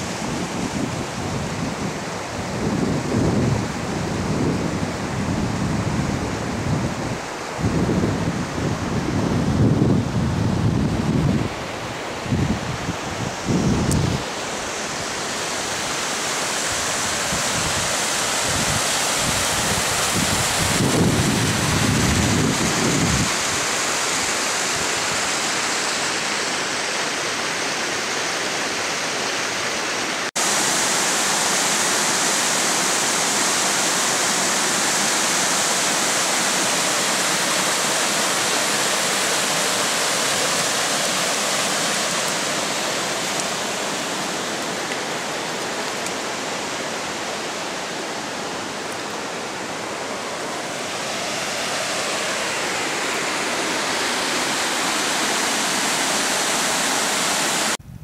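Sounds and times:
mountain creek rushing: 0:00.0 - 0:57.8
wind buffeting microphone: 0:00.2 - 0:14.3, 0:17.0 - 0:23.7.

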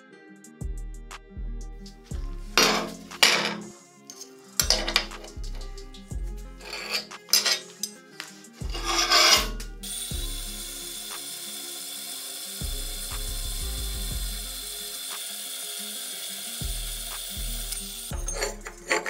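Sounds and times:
music with deep bass beat: 0:00.6 - 0:03.4, 0:04.6 - 0:06.8, 0:08.2 - 0:11.3, 0:12.6 - 0:14.9, 0:16.6 - 0:19.0
scraping on steel plate: 0:02.5 - 0:05.6, 0:06.6 - 0:09.6, 0:18.1 - 0:19.0.

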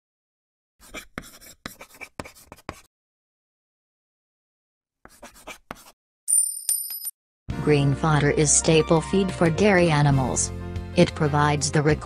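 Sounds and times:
pen scribbling on paper: 0:00.8 - 0:02.9, 0:05.0 - 0:06.0.

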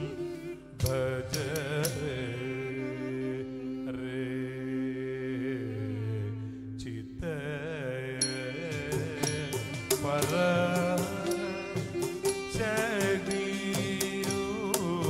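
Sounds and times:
person singing sliding melody: 0:00.0 - 0:15.0
violin: 0:00.0 - 0:15.0
sharp percussion strokes: 0:08.2 - 0:15.0.

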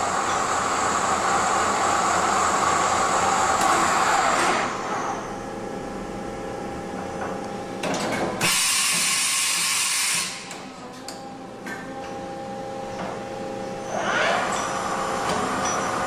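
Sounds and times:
machine running: 0:08.4 - 0:10.8
machine whine: 0:12.5 - 0:16.0.

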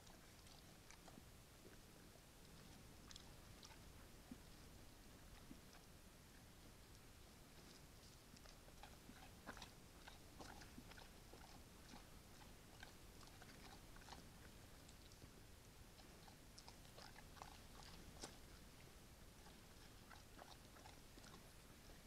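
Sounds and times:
bear crunching and chewing: 0:02.5 - 0:04.7, 0:06.9 - 0:15.4, 0:16.0 - 0:22.0.

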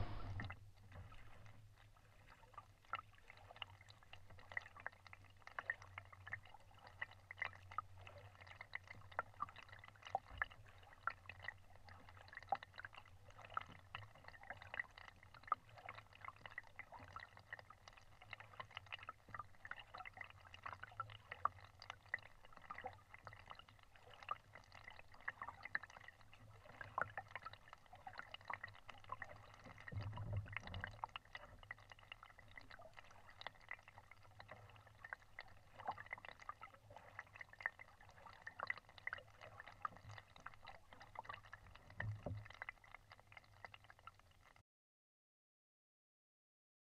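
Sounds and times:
short low rumble: 0:00.0 - 0:00.5
low hum: 0:00.0 - 0:00.6
water dripping and gurgling: 0:00.0 - 0:44.6.

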